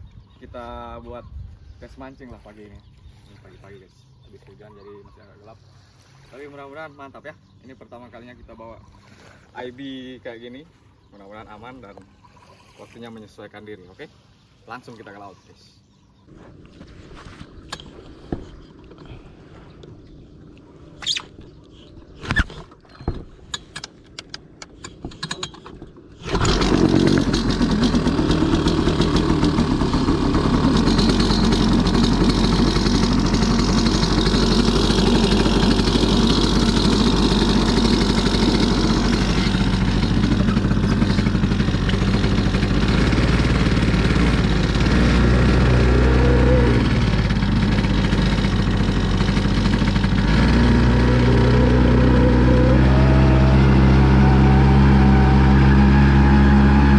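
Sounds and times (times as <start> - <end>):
outboard motor running: 2.6 - 56.9
sharp knocks and rattles: 22.2 - 29.6, 30.5 - 45.8.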